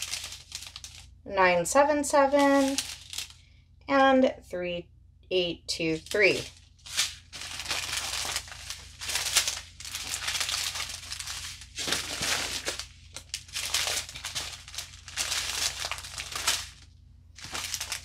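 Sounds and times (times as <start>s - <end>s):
plastic bags crinkling: 0.0s - 1.1s, 2.2s - 3.4s, 6.0s - 18.0s.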